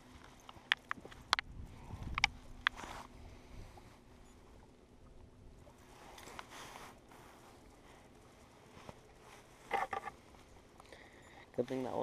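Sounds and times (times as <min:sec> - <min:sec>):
handling rustle: 0:00.0 - 0:04.6, 0:05.6 - 0:12.0.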